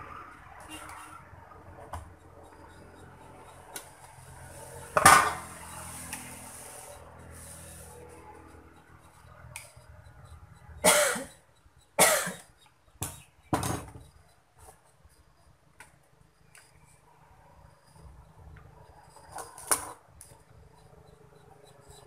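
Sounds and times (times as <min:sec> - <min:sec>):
man coughing: 0:10.8 - 0:11.3, 0:12.0 - 0:12.5.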